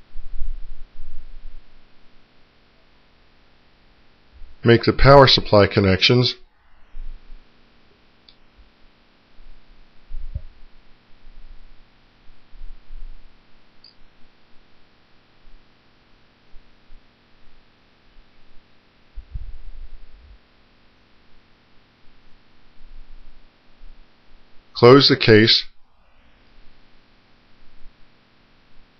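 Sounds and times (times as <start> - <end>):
dull low thumps: 0.0 - 1.8, 6.8 - 7.5, 9.4 - 13.4, 19.1 - 20.4.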